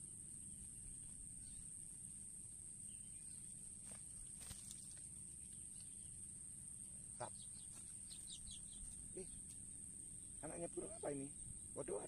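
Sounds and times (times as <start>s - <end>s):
high-pitched insect drone: 0.0s - 12.0s
bird chirps: 2.8s - 3.6s, 4.2s - 6.2s, 7.1s - 12.0s.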